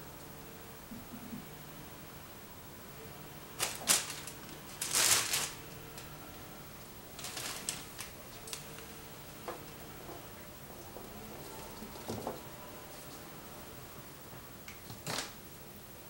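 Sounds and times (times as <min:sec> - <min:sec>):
plastic bag crinkling: 0:03.6 - 0:05.8, 0:07.1 - 0:08.8.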